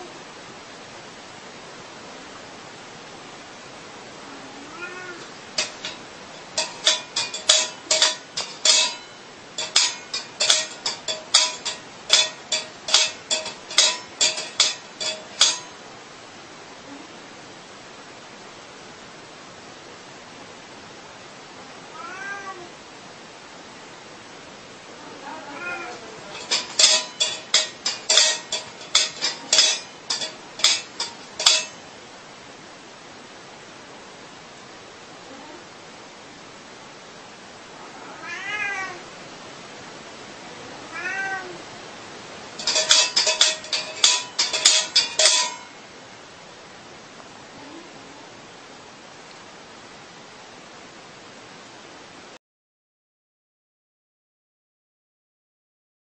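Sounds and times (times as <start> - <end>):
metal cat bowl clinking: 5.6 - 15.8, 25.8 - 31.8, 42.6 - 45.8.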